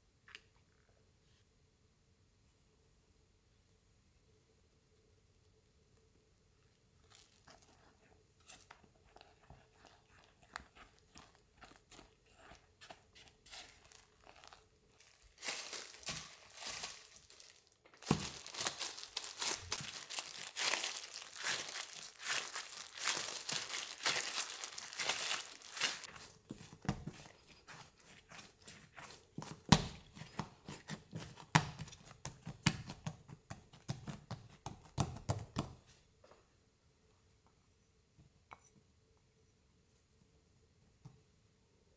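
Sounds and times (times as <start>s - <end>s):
plastic gloves crinkling: 6.7s - 33.1s
dough being kneaded: 6.7s - 36.2s.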